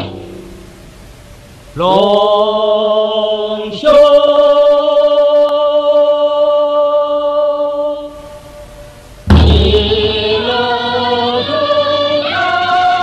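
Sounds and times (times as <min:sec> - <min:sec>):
person singing long notes: 0:09.5 - 0:13.0.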